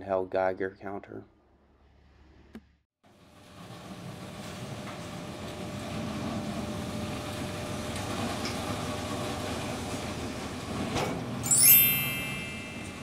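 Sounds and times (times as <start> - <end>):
bright ding: 11.5 - 13.0.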